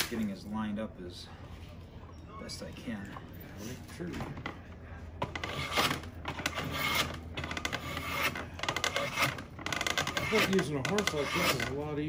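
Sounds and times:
drawknife scraping wood: 5.2s - 11.8s.

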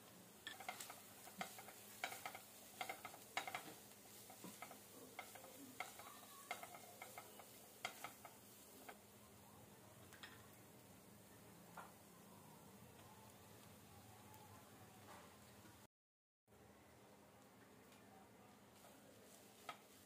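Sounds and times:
spatula scraping a pan: 0.4s - 9.0s.

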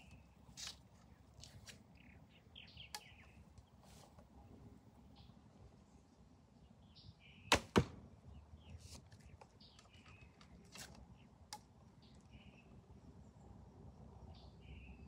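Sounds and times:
birds chirping faintly: 0.0s - 15.0s
arrow striking target: 7.5s - 8.0s.

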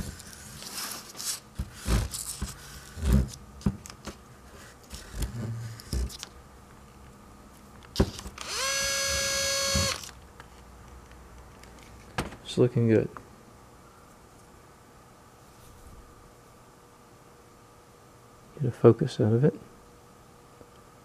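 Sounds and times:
electric drill spinning: 8.4s - 10.2s.

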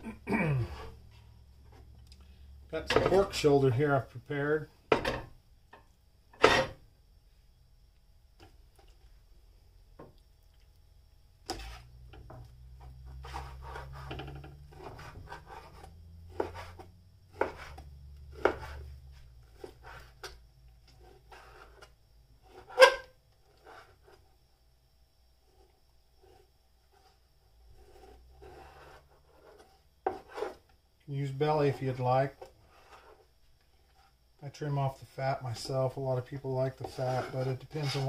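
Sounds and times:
knife slicing scrapes: 11.4s - 11.9s, 13.1s - 20.3s, 20.9s - 21.9s, 27.0s - 30.6s, 36.8s - 38.0s.

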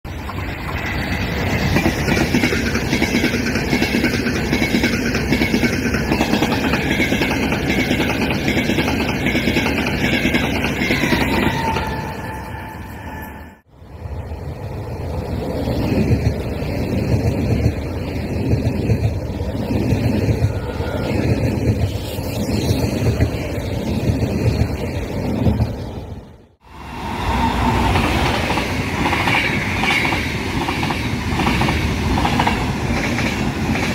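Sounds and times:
wheels clattering on rails: 0.1s - 12.2s, 27.6s - 33.9s
high-speed train passing: 0.1s - 33.9s.

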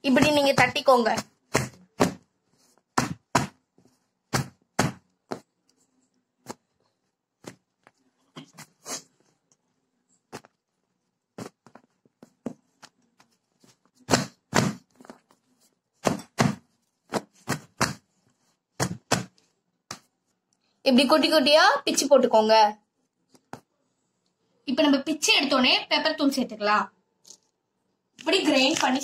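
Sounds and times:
hands slapping flatbreads: 0.1s - 5.7s, 11.3s - 15.4s, 16.0s - 20.1s.

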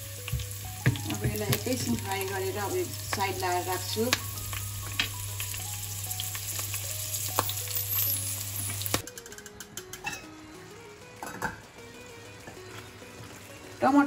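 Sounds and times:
vegetables sizzling in hot oil: 0.0s - 9.0s, 10.5s - 14.0s.

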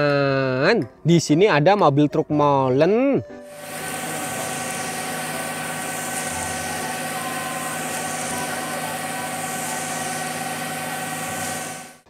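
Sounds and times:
mixer truck diesel engine running: 3.5s - 12.0s.

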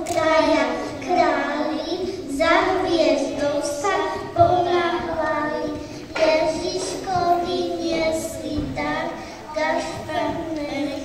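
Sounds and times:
children singing in a hall: 0.0s - 11.0s.

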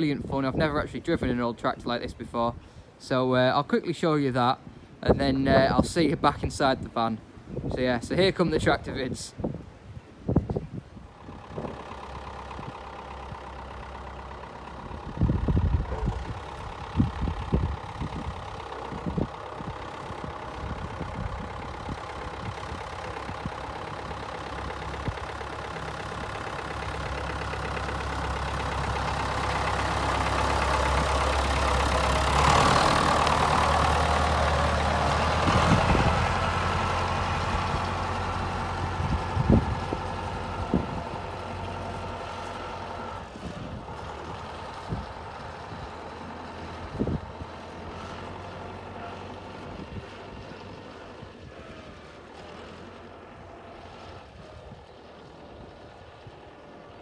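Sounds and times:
tractor engine running: 9.6s - 57.0s.

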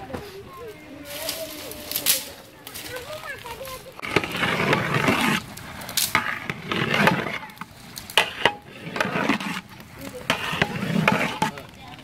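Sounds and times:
metal ladle scraping rice pot: 3.9s - 11.8s.

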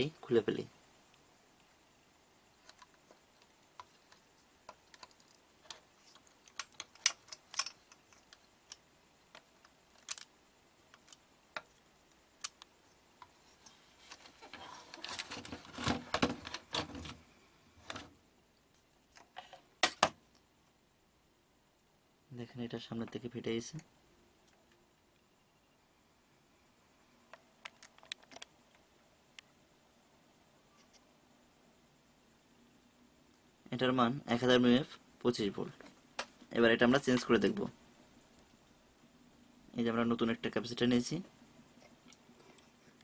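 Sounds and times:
circuit board scraping and handling: 13.2s - 17.2s.

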